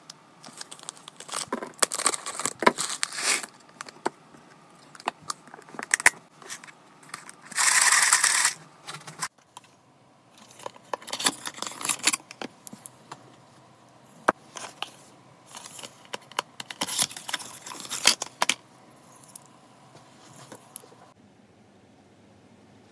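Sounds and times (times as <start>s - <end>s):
plastic packaging crinkling: 0.4s - 4.0s, 4.9s - 8.6s, 10.4s - 12.4s, 15.5s - 19.4s.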